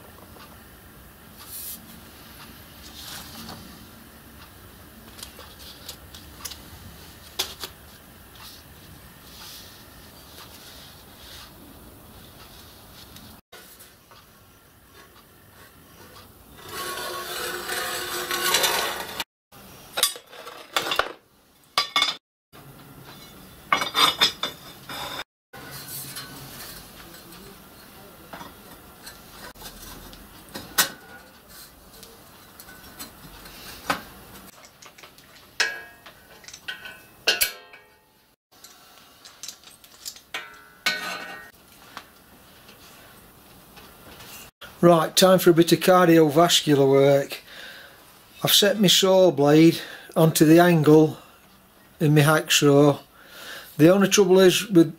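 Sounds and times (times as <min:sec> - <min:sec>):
metal scraping: 0:15.9 - 0:19.3, 0:23.1 - 0:33.8.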